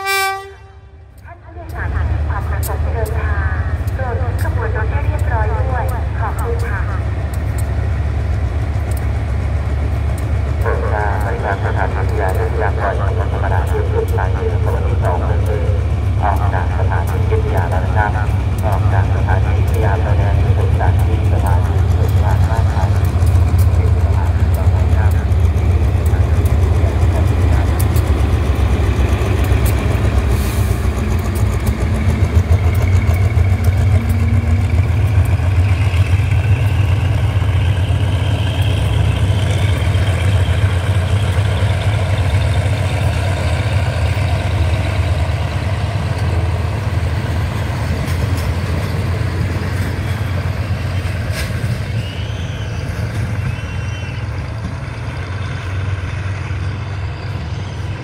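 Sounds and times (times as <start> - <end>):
diesel locomotive engine throbbing: 0.0 - 58.0
train carriages rolling on rails: 1.1 - 58.0.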